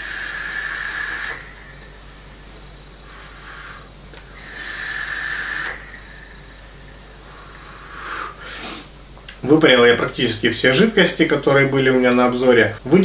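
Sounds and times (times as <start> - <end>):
person exhaling vapour: 0.0 - 9.0.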